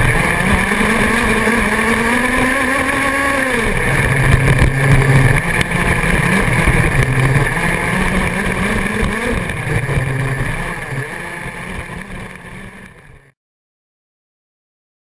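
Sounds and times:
toy car motor: 0:00.0 - 0:13.3
tyres on dirt: 0:00.0 - 0:13.3
wind: 0:00.0 - 0:13.4.

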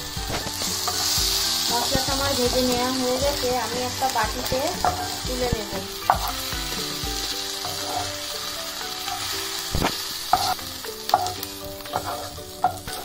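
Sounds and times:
oil sizzling in a pan: 0:00.0 - 0:13.0
spatula knocking on pan: 0:04.7 - 0:06.4, 0:09.0 - 0:13.0
spatula stirring and scraping: 0:04.7 - 0:13.0.

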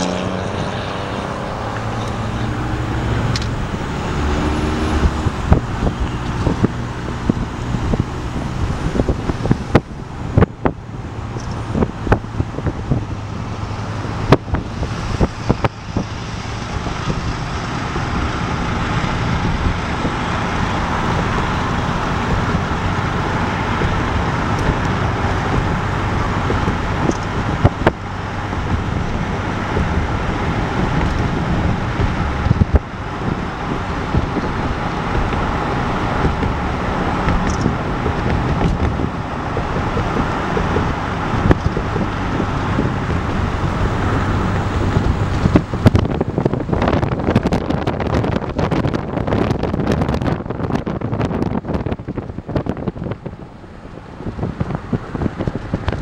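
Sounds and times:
car road noise: 0:00.0 - 0:56.0.

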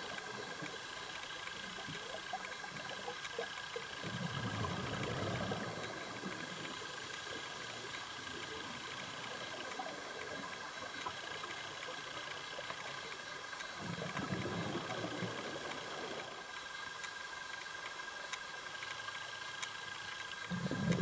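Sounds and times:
steady underwater hiss: 0:00.0 - 0:21.0
diver exhaust bubbles: 0:20.5 - 0:21.0.

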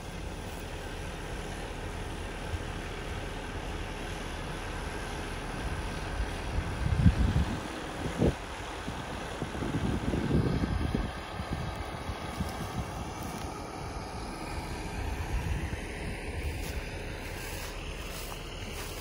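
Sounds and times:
combine harvester engine running: 0:00.0 - 0:19.0
wind buffeting microphone: 0:06.1 - 0:19.0.

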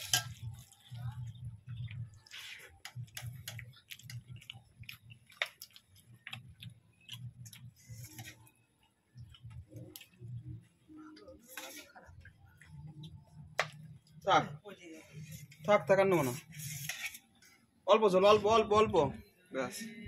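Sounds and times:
ladle clinking on metal bowls: 0:00.0 - 0:00.8.

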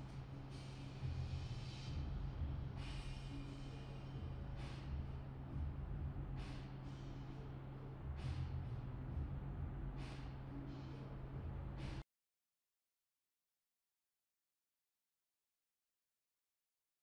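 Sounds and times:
low drone music: 0:00.0 - 0:12.0.

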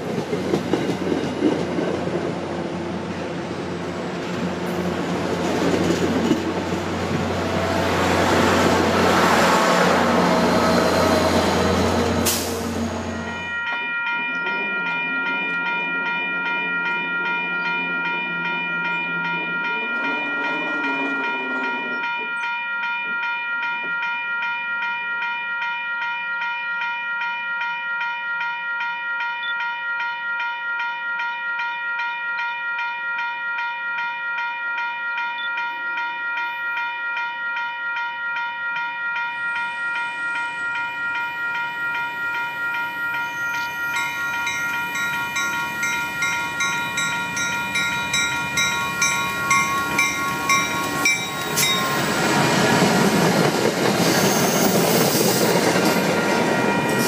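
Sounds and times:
train approaching: 0:00.0 - 0:25.8, 0:35.2 - 0:57.0
crossing bell ringing: 0:03.0 - 0:57.0
train horn: 0:19.7 - 0:22.2.

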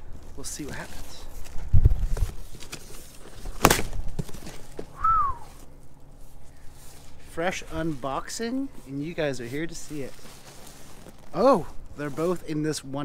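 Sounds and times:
cardboard box being torn open: 0:02.1 - 0:04.8
sharp crack: 0:03.5 - 0:04.2.

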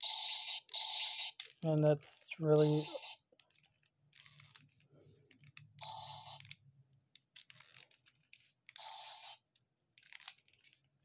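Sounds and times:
toy electronic sound effect: 0:00.0 - 0:01.5, 0:02.5 - 0:03.2, 0:05.8 - 0:06.5, 0:08.8 - 0:09.4
plastic toy clicks: 0:01.3 - 0:01.6, 0:05.5 - 0:10.8.

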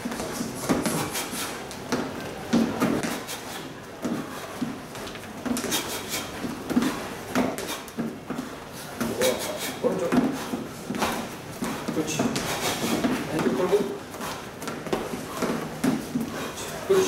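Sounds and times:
shoes scuffing: 0:00.0 - 0:16.5
shoes thudding on step platform: 0:01.9 - 0:03.2, 0:06.4 - 0:09.4, 0:10.0 - 0:16.5.

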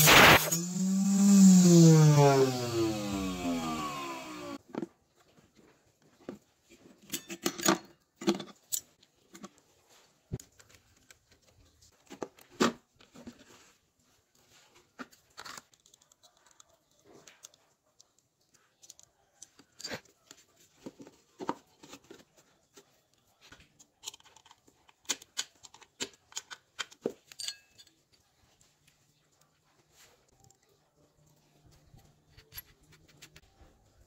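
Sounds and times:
small parts clicking and tapping: 0:15.4 - 0:20.5, 0:22.8 - 0:29.0, 0:30.3 - 0:33.6.

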